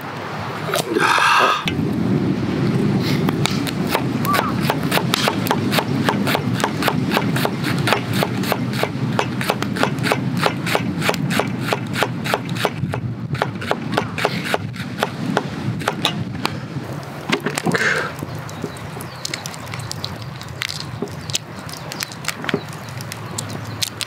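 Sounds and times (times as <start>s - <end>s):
knife chopping on wooden board: 3.5s - 16.2s.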